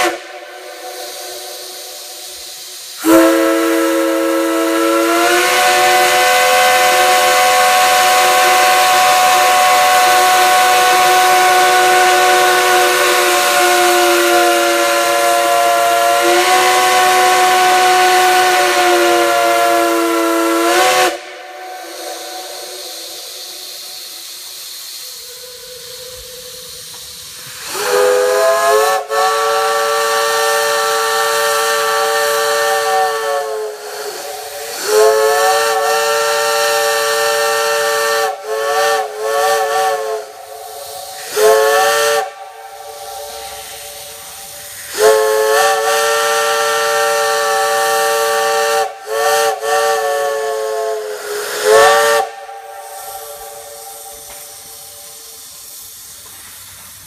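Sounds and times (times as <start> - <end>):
steam hiss: 0.0 - 57.0
steam whistle blasts: 0.0 - 57.0.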